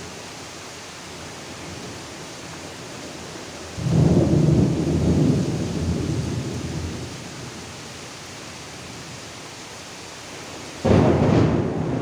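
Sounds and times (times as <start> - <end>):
steady rain hissing: 0.0 - 12.0
thunder rumbling: 3.8 - 7.2, 10.8 - 12.0.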